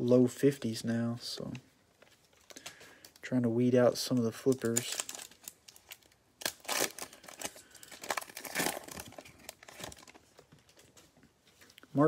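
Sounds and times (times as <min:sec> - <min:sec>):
plastic wrapper tearing and crinkling: 0:04.0 - 0:11.0.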